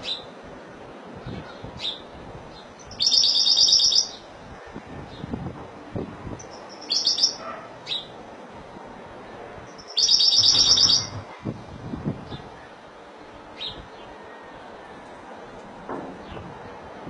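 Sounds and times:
goldfinch twittering and trilling: 2.8 - 4.2, 6.4 - 8.1, 9.7 - 11.2.

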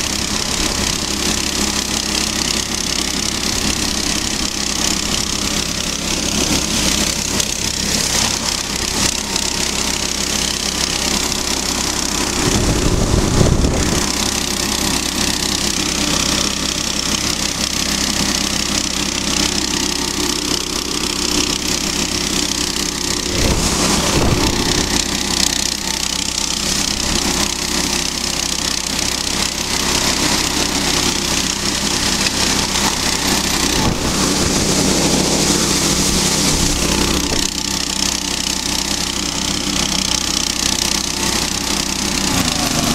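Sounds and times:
small petrol engine running: 0.0 - 42.9
track churning through snow: 0.0 - 42.9
low rumble: 11.2 - 16.6, 21.2 - 27.5, 31.1 - 37.7.

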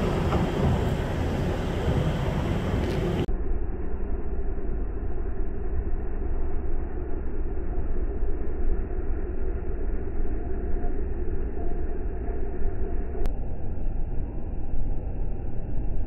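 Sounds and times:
snow plow engine rumbling: 0.0 - 3.3.

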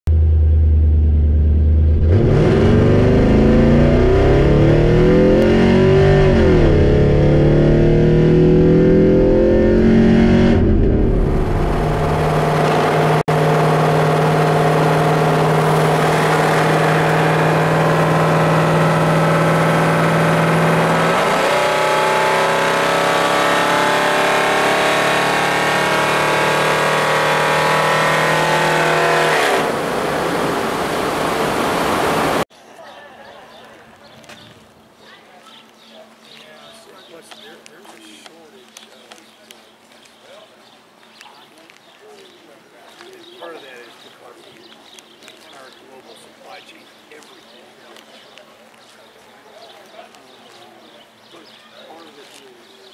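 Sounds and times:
car engine accelerating: 0.1 - 32.5.

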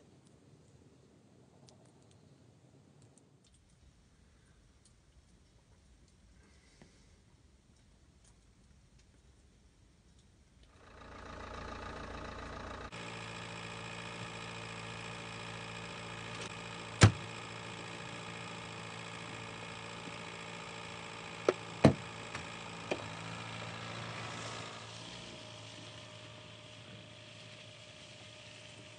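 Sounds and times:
car engine idling: 10.8 - 28.9.

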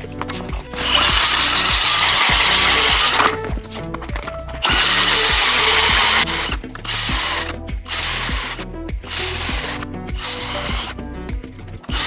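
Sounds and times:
music with steady beat: 0.0 - 12.0
ice auger cutting through ice: 0.3 - 3.4, 4.6 - 11.0, 11.8 - 12.0.

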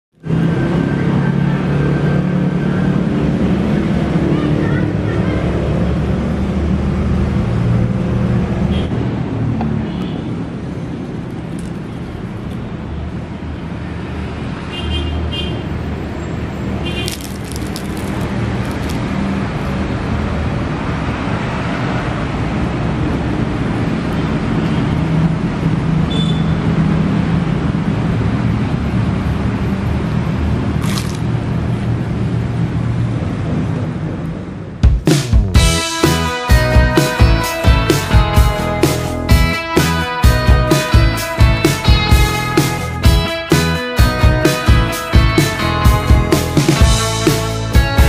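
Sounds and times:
short crackles: 17.0 - 19.1.

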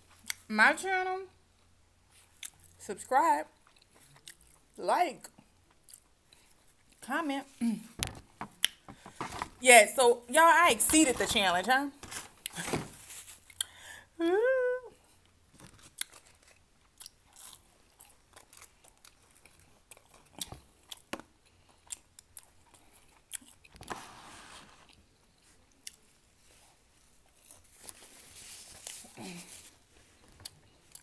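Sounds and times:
close chewing with soft crunches: 1.6 - 2.8, 3.6 - 7.0, 15.1 - 23.8, 24.9 - 31.0.

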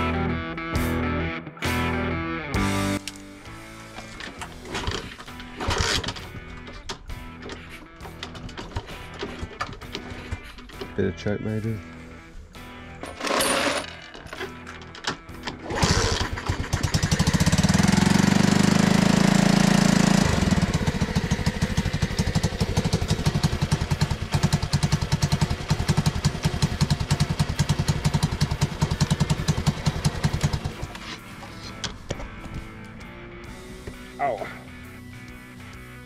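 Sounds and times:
small motorcycle engine: 4.4 - 6.3, 15.5 - 31.7.

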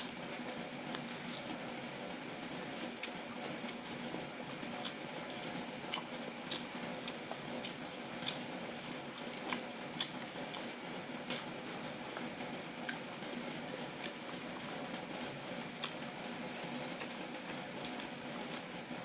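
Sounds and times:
chewing: 0.0 - 1.8, 2.4 - 3.8, 4.6 - 14.9, 15.7 - 18.9
steady background hum: 0.0 - 19.0
fingers picking through noodles: 4.6 - 19.0.

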